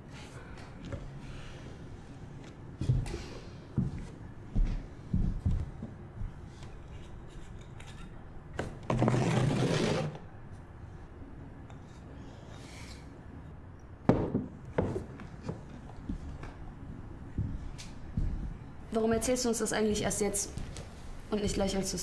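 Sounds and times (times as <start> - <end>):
carafe knocks and thuds: 14.1 - 15.6.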